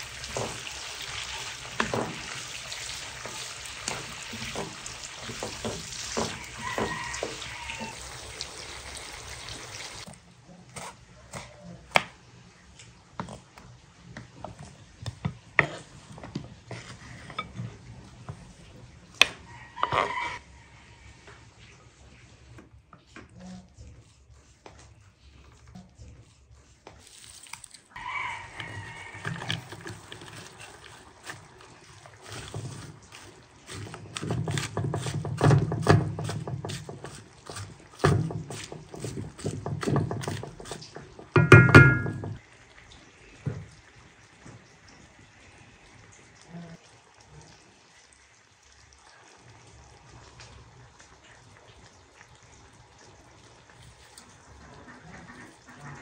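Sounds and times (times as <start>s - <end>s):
spoon knocking and scraping pan: 0.0s - 8.2s, 14.2s - 18.5s, 19.1s - 20.4s, 28.6s - 42.4s
wooden spoon stirring in a pot: 0.0s - 11.4s, 12.4s - 42.4s, 48.9s - 54.6s
loud knock with ringing tone: 41.4s - 42.4s.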